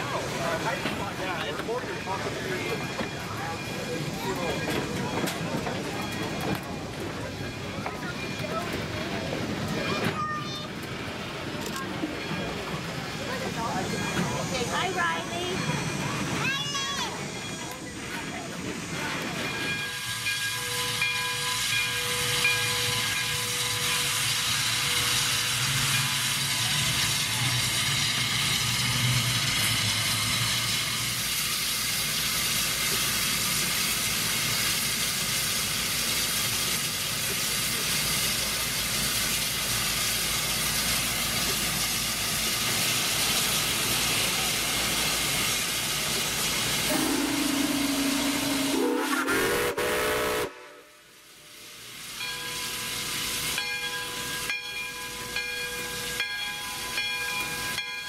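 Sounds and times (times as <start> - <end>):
steam locomotive hissing: 0.0 - 58.0
rising pitched tone: 46.9 - 49.7.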